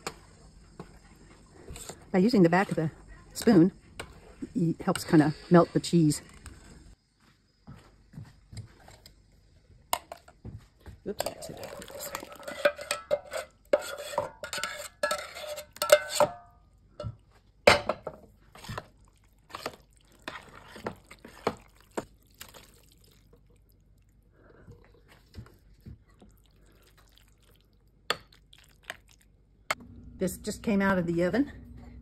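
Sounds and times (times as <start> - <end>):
metal utensil clinking against pot: 11.2 - 17.1.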